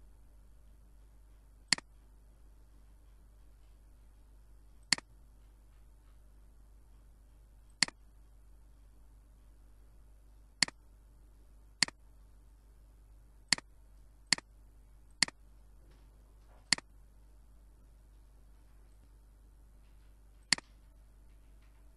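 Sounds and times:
faint steady hum: 0.0 - 21.9.

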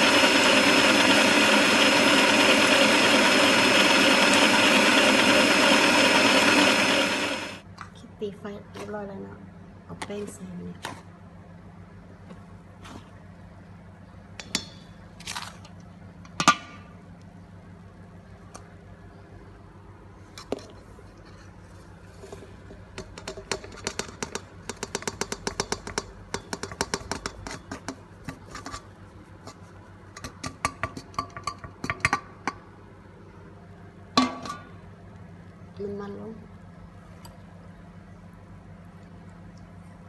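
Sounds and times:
metal bowl knocking and clinking: 34.2 - 34.8.

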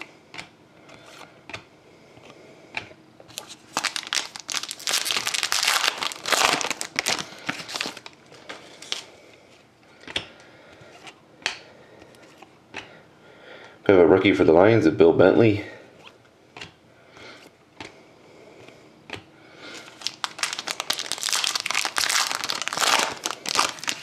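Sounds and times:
foil wrapper crinkling and tearing: 3.3 - 9.1, 19.8 - 24.0.

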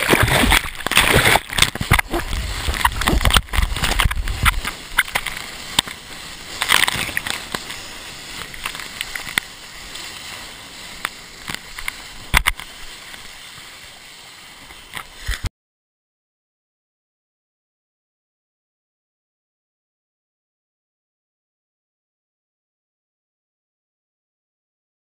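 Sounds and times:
water splashes: 0.0 - 15.5
whitewater churning: 0.0 - 15.5.

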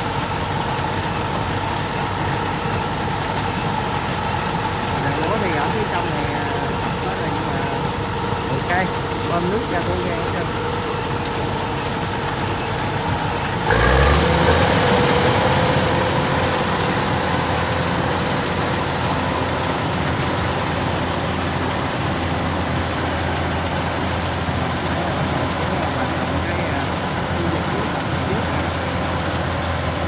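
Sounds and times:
combine harvester engine and threshing: 0.0 - 30.0.

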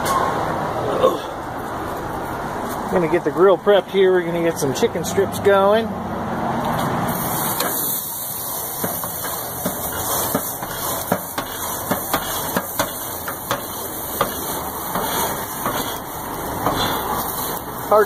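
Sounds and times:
wire brush scrubbing grill grates: 6.7 - 18.0.

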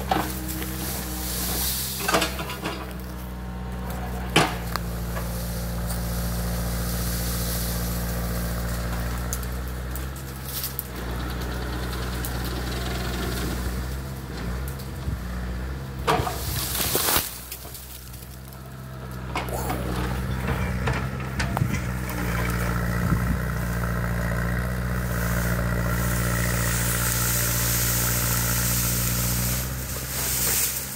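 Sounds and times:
diesel engine running under load: 0.0 - 30.9
tree wood cracking: 16.5 - 19.8.

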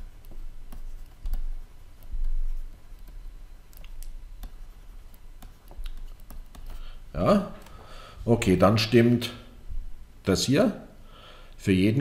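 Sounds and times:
stylus tapping on tablet: 3.0 - 6.8.

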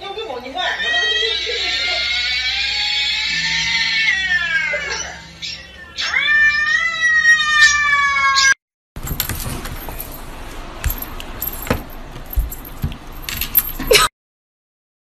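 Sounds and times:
cat meowing: 0.8 - 8.6.

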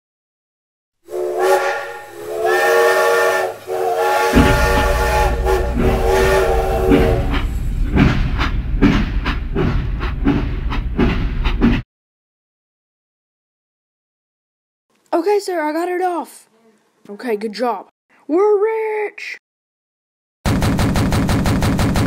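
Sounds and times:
steam locomotive whistle: 1.1 - 7.6
steam train rumbling on rails: 1.1 - 11.8
train wheels clickety-clack: 4.3 - 11.8.

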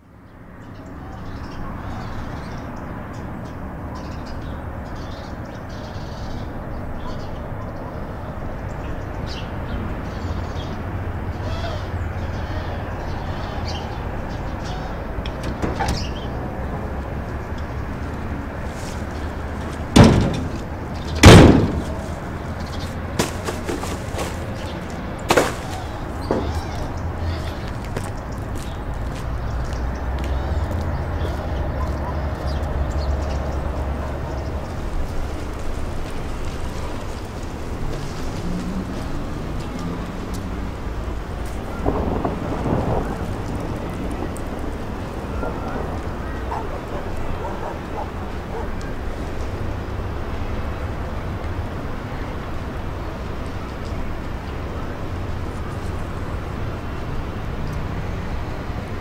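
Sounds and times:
birds chirping: 0.2 - 49.9
heavy slams: 19.6 - 27.0.

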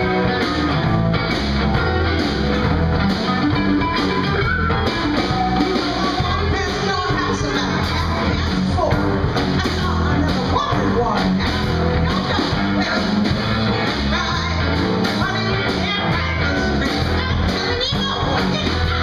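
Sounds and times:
blues-rock band playing: 0.0 - 19.0
woman singing: 5.5 - 19.0.

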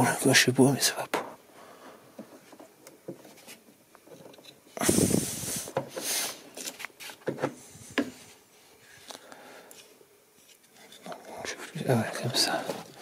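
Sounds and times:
hands rubbing and scraping parts: 2.2 - 13.0.

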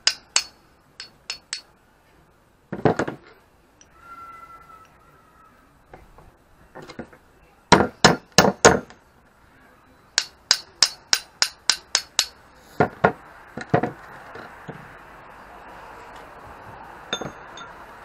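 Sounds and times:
hammer striking steel tubing: 0.0 - 1.7, 10.2 - 12.4.

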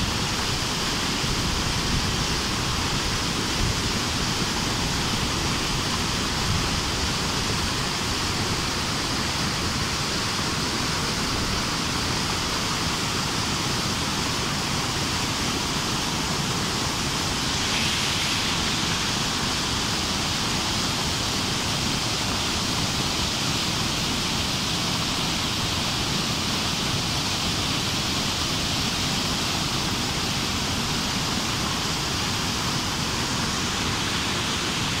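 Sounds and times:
river water rushing: 0.0 - 35.0.

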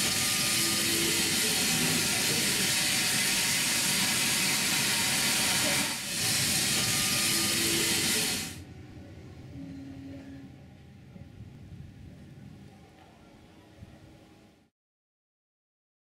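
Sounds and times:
steam hissing: 0.0 - 8.6.

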